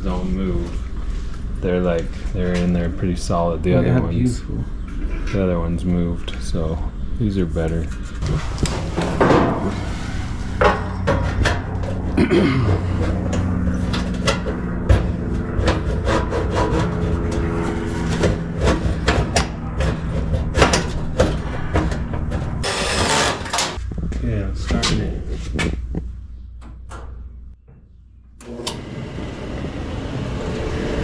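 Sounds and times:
steady low hum: 0.0s - 31.0s
parts clicking and scraping: 7.6s - 24.1s.

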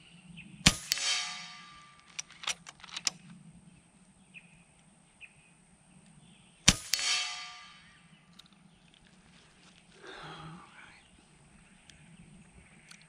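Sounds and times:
air rifle shot crack: 0.7s - 3.1s, 6.7s - 8.2s
metallic ring of pellet hitting target: 0.7s - 3.1s, 6.7s - 8.4s
sharp click: 0.7s - 3.2s, 6.7s - 8.6s.

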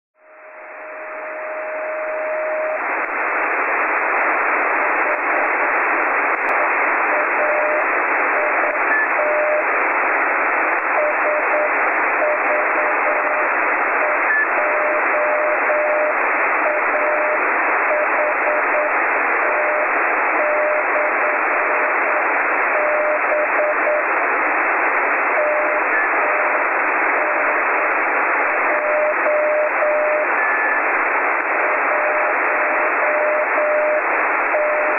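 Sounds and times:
receiver static hiss: 0.2s - 34.9s
morse code beeps: 7.1s - 7.8s, 8.4s - 9.6s, 11.0s - 21.9s, 22.8s - 24.0s, 25.4s - 26.6s, 28.7s - 30.8s, 31.9s - 34.9s.

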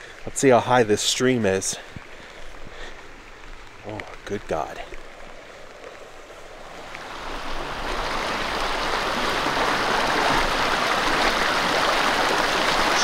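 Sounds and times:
creek rushing: 0.0s - 13.0s.

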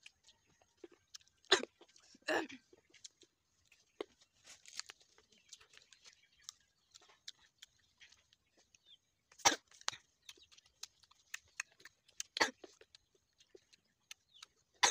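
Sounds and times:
chewing crunches and wet clicks: 0.0s - 14.9s
crunchy bites: 2.9s - 8.3s, 9.3s - 14.9s.

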